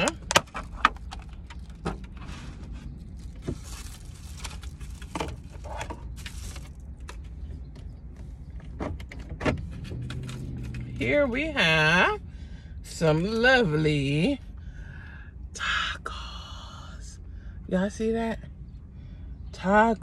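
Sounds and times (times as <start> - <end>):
steady low hum: 0.0 - 20.0
wrappers crinkling: 1.2 - 7.2.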